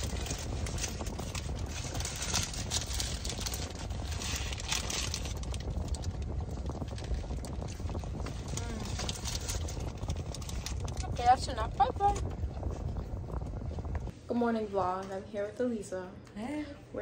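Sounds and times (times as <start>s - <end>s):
paper wrappers crinkling: 0.0s - 12.3s
low rumble: 0.0s - 14.8s.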